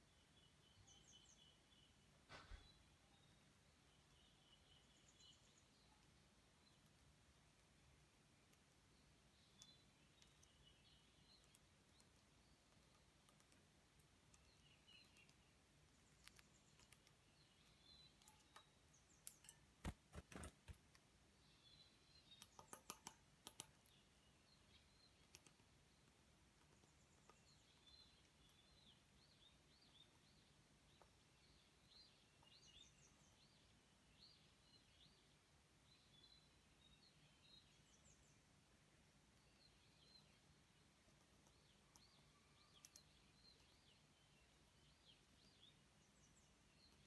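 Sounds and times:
faint high bird chirps: 0:00.0 - 0:20.8, 0:21.4 - 0:38.6, 0:39.3 - 0:47.0
bird tapping seed on metal: 0:16.1 - 0:21.1, 0:22.3 - 0:24.0.

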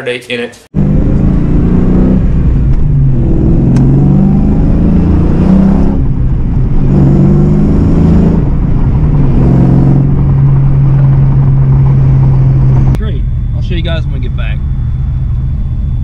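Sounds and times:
car engine accelerating: 0:00.8 - 0:16.0.

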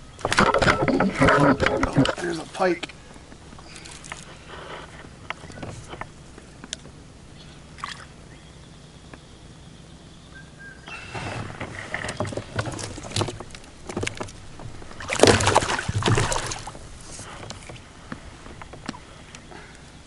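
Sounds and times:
fish thrashing and splashing water: 0:12.0 - 0:17.8.

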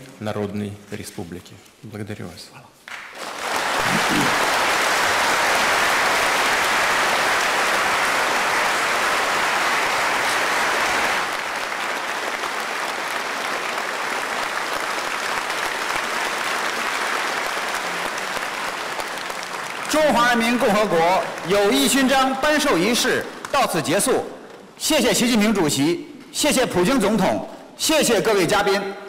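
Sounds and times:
audience applauding: 0:02.9 - 0:23.8.

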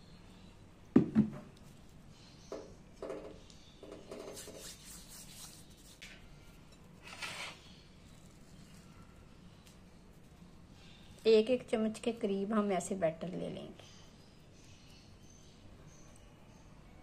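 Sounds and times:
knock on glass bowl: 0:01.0 - 0:01.4
plastic spoon scraping dough: 0:03.9 - 0:06.1, 0:06.8 - 0:07.8
hands rubbing dough: 0:03.9 - 0:07.3.

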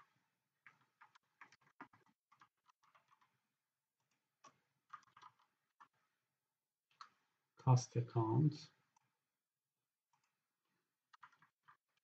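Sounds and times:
keyboard and mouse clicking: 0:00.0 - 0:03.4, 0:04.0 - 0:06.0, 0:10.1 - 0:10.4, 0:11.1 - 0:12.0.

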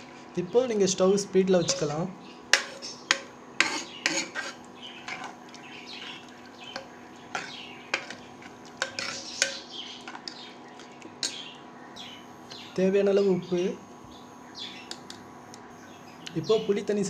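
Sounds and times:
ladle clinking and scraping pot: 0:01.7 - 0:02.0, 0:02.6 - 0:10.5.

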